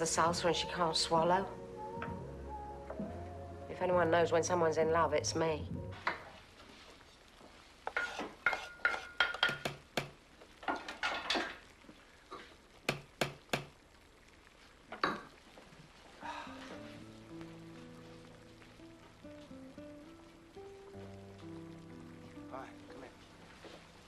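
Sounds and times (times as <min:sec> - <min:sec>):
music: 0:00.0 - 0:06.4, 0:16.2 - 0:24.0
crockery and cutlery clattering: 0:10.6 - 0:11.6.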